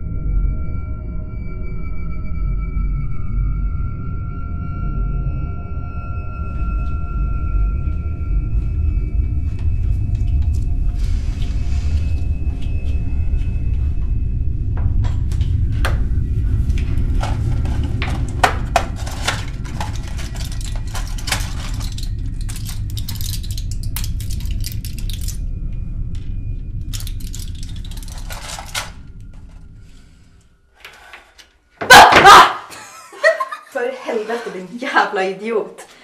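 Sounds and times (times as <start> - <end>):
low rumbling drone: 0.0 - 31.7
clattering and rattling clicks: 17.7 - 25.4, 26.9 - 29.0.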